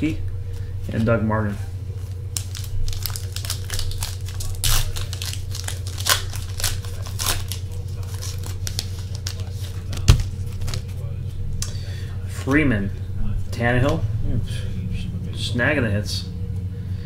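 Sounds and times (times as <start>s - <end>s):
low hum: 0.0s - 17.0s
foil wrapper tearing and crinkling: 2.1s - 10.9s.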